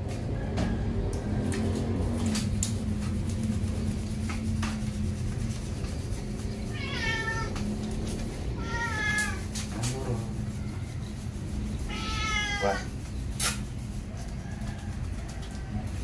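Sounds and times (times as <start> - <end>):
cat meowing: 6.7 - 7.7, 8.6 - 9.5, 11.9 - 12.9.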